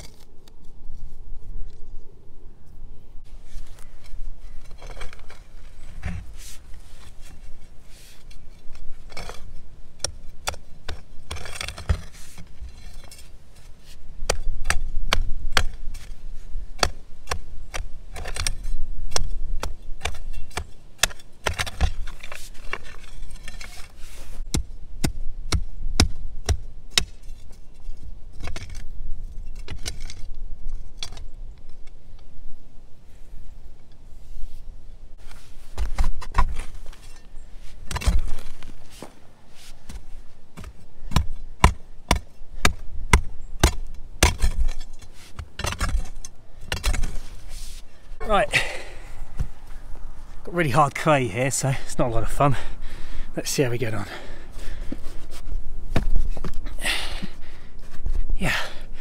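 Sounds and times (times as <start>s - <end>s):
spade scraping soil: 3.3s - 14.8s, 20.0s - 24.5s, 35.2s - 40.9s, 44.2s - 49.8s.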